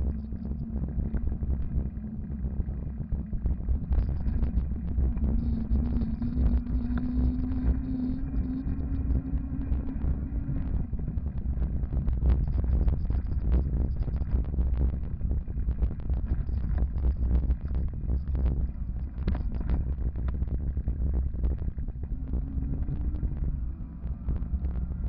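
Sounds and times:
wind buffeting microphone: 0.0s - 25.0s
small clicks and knocks: 15.8s - 20.6s.

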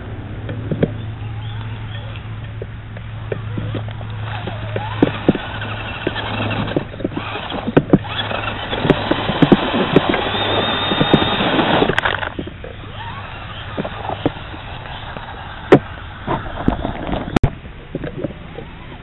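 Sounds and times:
twigs clicking and crackling: 0.4s - 18.3s
toy truck motor whirring: 3.2s - 17.4s.

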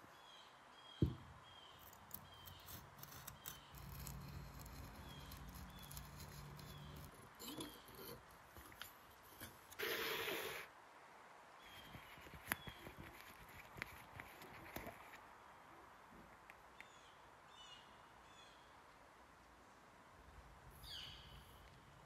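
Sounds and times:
tape tearing rasp: 1.8s - 8.2s
knife scraping and clicking: 1.8s - 9.8s.

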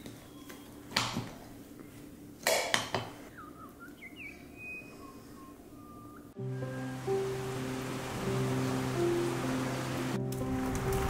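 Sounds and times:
faint bird chirps: 0.0s - 0.9s, 3.2s - 9.0s.

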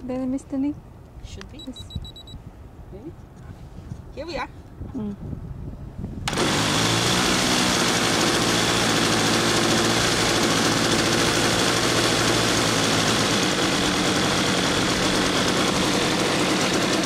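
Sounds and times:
model plane engine idling: 6.3s - 17.0s.

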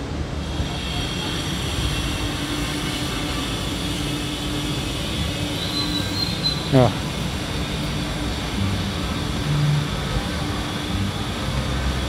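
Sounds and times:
steady mechanical hum: 0.0s - 12.0s
street noise: 0.0s - 12.0s.

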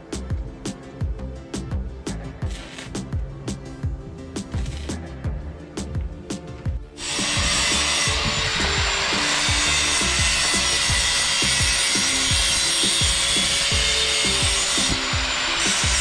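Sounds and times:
background music with bass: 0.0s - 16.0s
power tool grinding metal: 7.0s - 16.0s.

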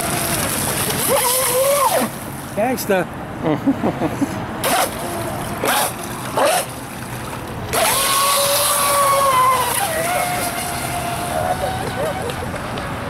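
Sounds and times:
electric boat motor whining: 0.0s - 2.1s, 7.7s - 12.5s.

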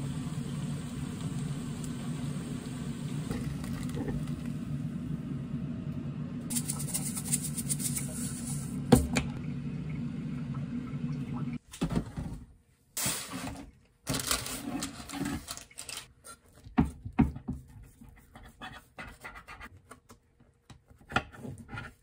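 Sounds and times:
appliance humming: 0.0s - 11.6s.

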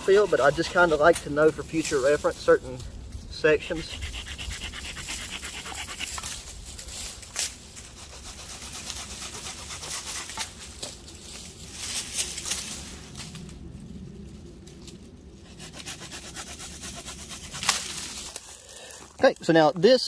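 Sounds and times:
blade scraping tree limb: 0.0s - 2.8s, 3.5s - 13.4s, 15.4s - 18.6s.

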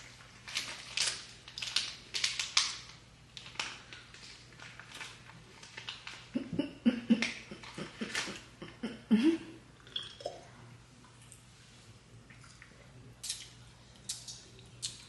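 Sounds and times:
mouth clicks and lip smacks: 12.4s - 15.0s.

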